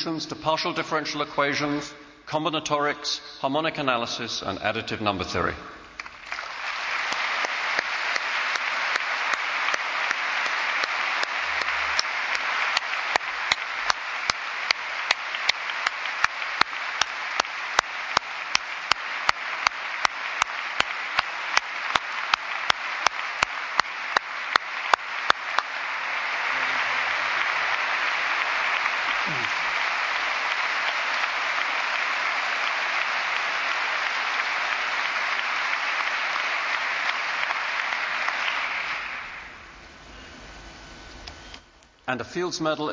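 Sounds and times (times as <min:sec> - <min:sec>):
audience applauding: 0:05.8 - 0:39.9.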